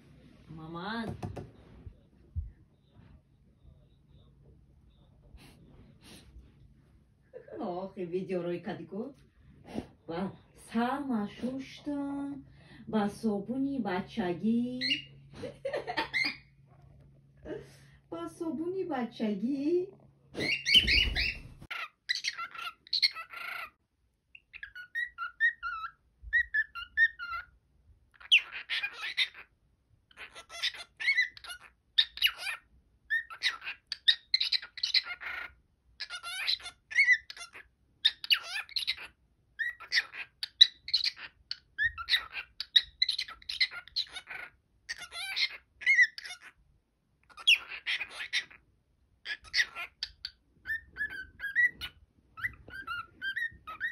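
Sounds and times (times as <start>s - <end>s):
cockatiel chirping and whistling: 20.4s - 23.7s, 24.4s - 27.5s, 30.2s - 46.5s, 47.3s - 48.6s, 49.2s - 53.9s.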